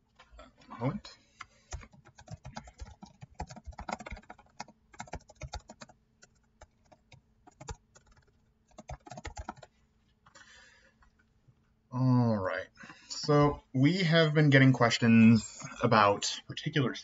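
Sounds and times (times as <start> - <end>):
computer keyboard typing: 1.7 - 9.7.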